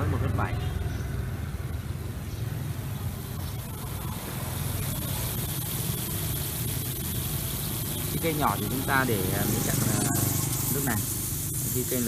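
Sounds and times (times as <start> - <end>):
sprinkler spray hissing: 3.0 - 12.0.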